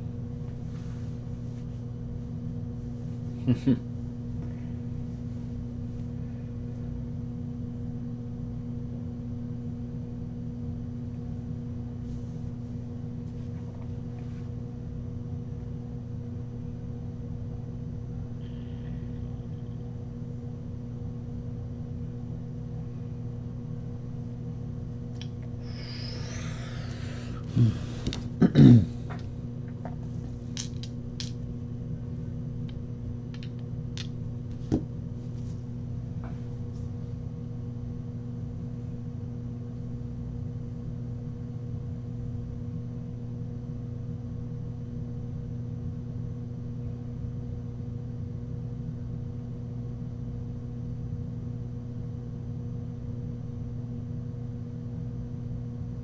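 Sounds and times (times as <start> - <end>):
low electrical hum: 0.0 - 56.0
plastic dice clicking: 30.6 - 31.4, 33.3 - 34.1.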